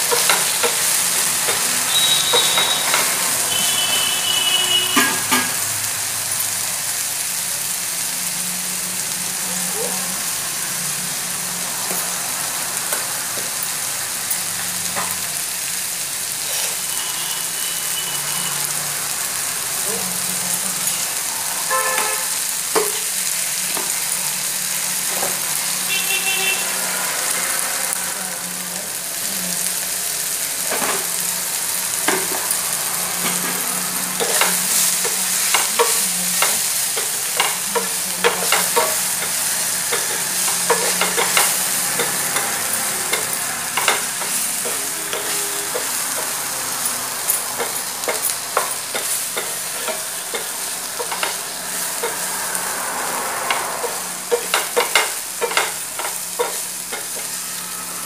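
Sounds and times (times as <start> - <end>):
vegetables sizzling in oil: 0.0 - 58.0
spatula scraping a pan: 32.1 - 58.0.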